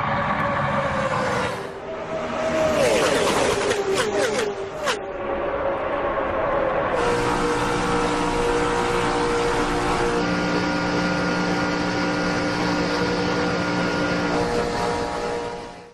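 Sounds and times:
car engine running hard: 0:07.0 - 0:15.9.

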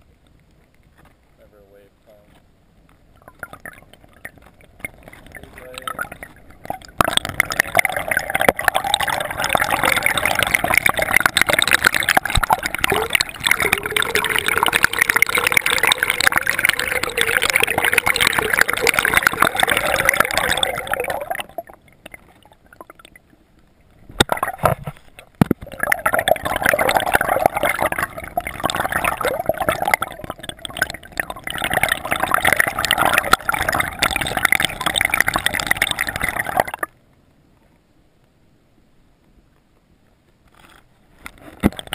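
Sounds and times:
water sloshing and gurgling: 0:02.3 - 0:37.0, 0:40.5 - 0:41.9.

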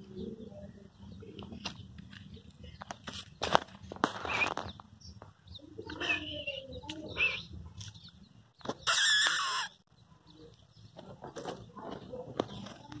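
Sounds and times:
birds calling: 0:00.0 - 0:13.0.

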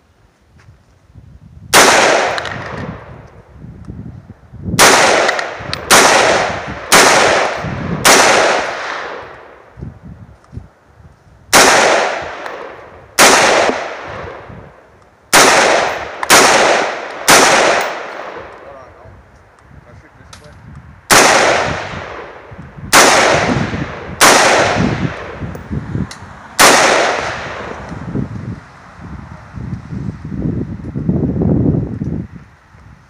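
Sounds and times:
rifle shots echoing: 0:01.7 - 0:03.1, 0:04.8 - 0:09.6, 0:11.5 - 0:14.5, 0:15.3 - 0:18.8, 0:21.1 - 0:25.4, 0:26.6 - 0:27.8.

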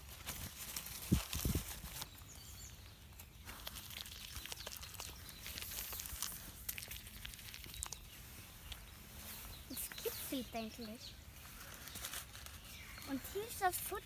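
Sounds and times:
animal nibbling pellets: 0:03.2 - 0:08.9.

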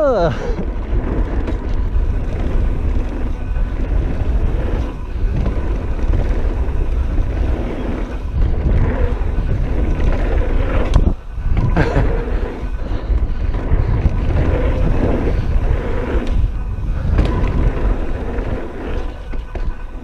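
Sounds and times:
mountain bike rumbling and rattling: 0:00.0 - 0:20.0
wind buffeting microphone: 0:00.0 - 0:20.0.

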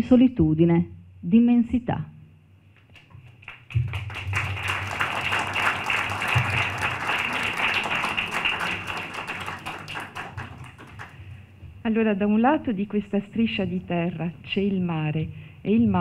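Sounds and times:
audience applauding: 0:02.9 - 0:11.2.

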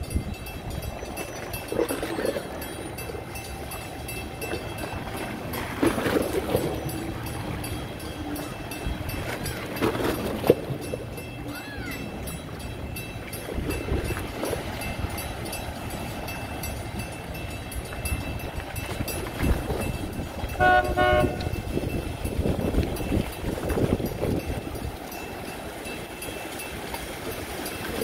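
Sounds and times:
horn toots: 0:20.6 - 0:21.6.

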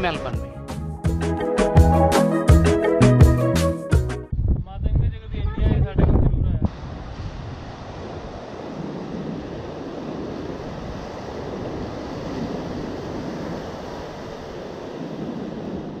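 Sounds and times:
wind buffeting microphone: 0:04.3 - 0:16.0
ocean surf breaking on beach: 0:06.7 - 0:16.0.

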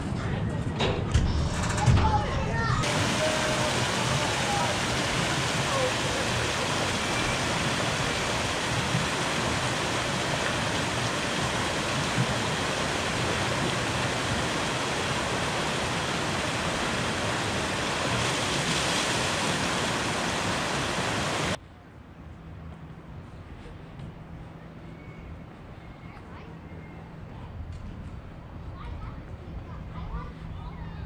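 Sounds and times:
fast water rushing: 0:02.8 - 0:21.6
small waterfalls spilling: 0:02.8 - 0:21.6.

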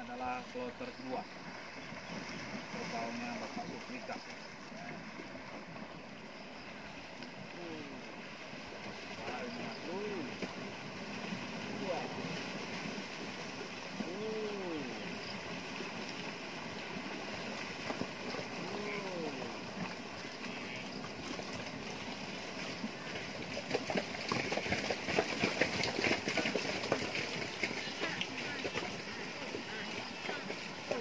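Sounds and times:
animals splashing through water: 0:00.0 - 0:31.0
water buffalo calls: 0:18.6 - 0:19.7.

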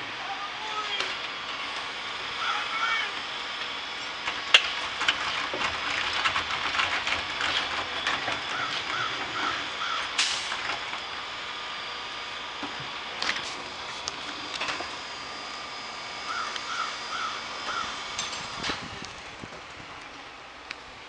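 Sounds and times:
trash cans clattering on hopper: 0:04.2 - 0:11.0
bird calling: 0:08.5 - 0:10.1, 0:16.3 - 0:18.0.

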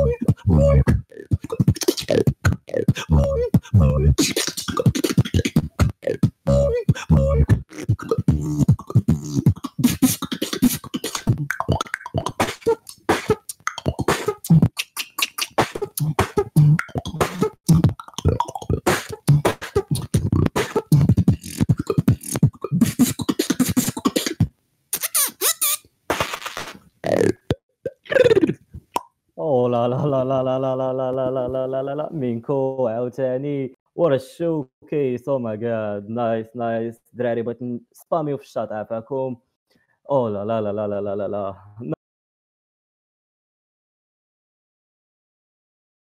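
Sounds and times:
person beatboxing: 0:00.0 - 0:29.0.

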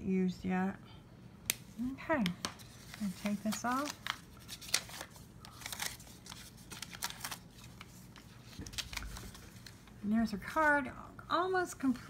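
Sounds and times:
paper rustling: 0:02.2 - 0:10.9.

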